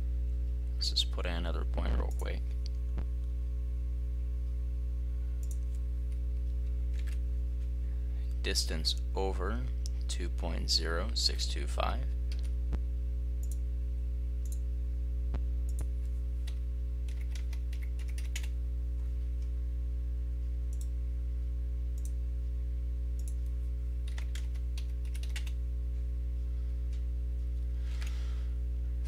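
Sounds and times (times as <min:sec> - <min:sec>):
low electrical hum: 0:00.0 - 0:29.0
keyboard typing: 0:06.9 - 0:07.2, 0:15.7 - 0:18.5, 0:23.2 - 0:25.6.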